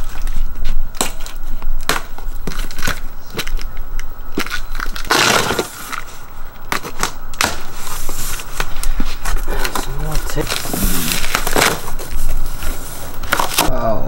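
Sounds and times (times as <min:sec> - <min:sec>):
cardboard box tearing: 0:04.4 - 0:06.0, 0:10.0 - 0:13.7
cardboard ripping: 0:04.4 - 0:13.7.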